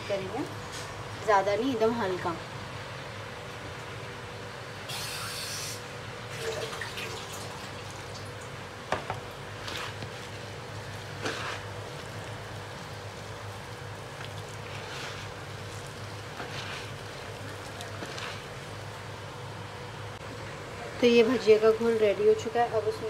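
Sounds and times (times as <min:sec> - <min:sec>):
steady low hum: 0:00.0 - 0:23.0
water pouring into a bowl: 0:06.4 - 0:08.4
hands squishing wet batter: 0:09.4 - 0:19.4.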